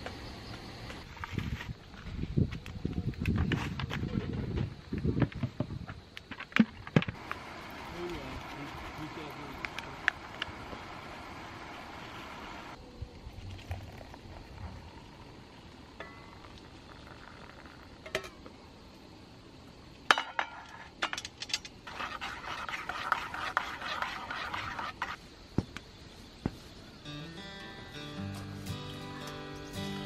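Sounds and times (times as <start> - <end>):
spoon stirring liquid: 21.9 - 25.2.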